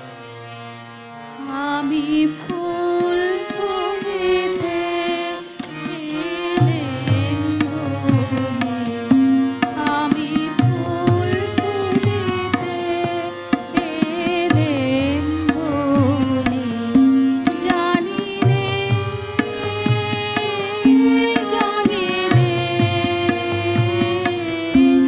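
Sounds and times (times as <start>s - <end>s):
violin melody with vibrato: 0.0s - 25.0s.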